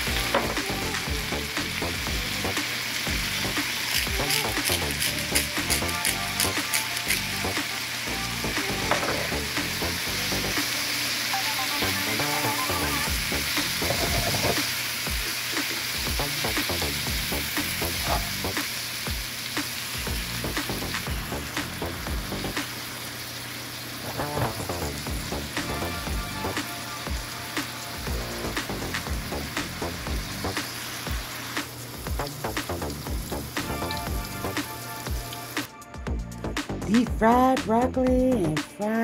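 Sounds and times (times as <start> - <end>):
vegetables sizzling in a skillet: 0.0 - 35.7
spatula scraping a pan: 13.8 - 14.7.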